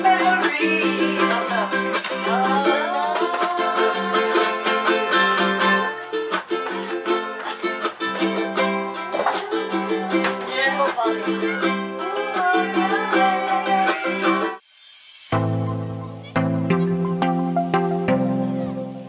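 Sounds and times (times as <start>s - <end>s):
ukulele plucking: 0.0s - 14.6s, 15.4s - 19.0s
sung or gliding melody: 15.3s - 19.0s.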